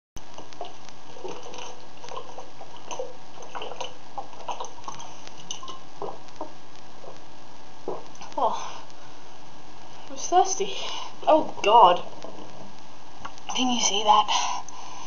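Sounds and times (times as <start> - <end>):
steady hiss: 0.2 - 15.0
person gulping water: 0.4 - 7.2, 7.8 - 8.9, 12.0 - 12.8.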